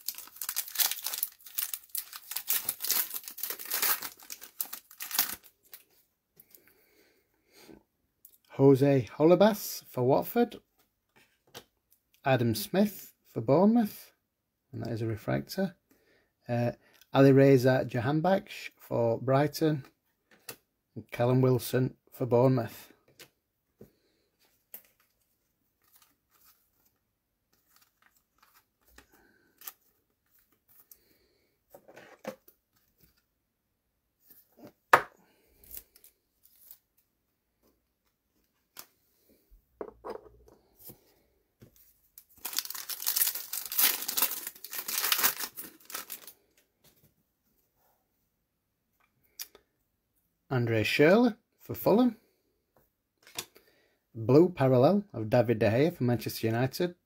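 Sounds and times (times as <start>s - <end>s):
card pack wrapper tearing: 0.0s - 5.8s, 42.2s - 46.4s.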